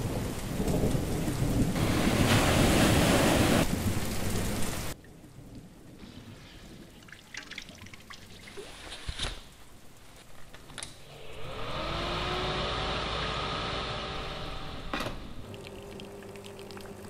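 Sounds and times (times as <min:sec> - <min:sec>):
blower fan whirring: 0:11.0 - 0:16.4.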